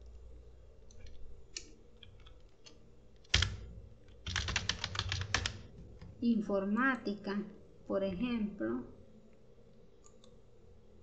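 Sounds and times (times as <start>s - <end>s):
typing on keyboard: 0.9s - 6.2s.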